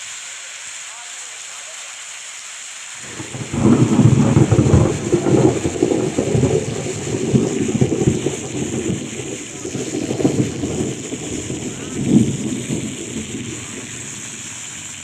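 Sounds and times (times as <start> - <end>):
rain hiss: 0.0 - 15.0
thunder rumbling: 3.0 - 15.0.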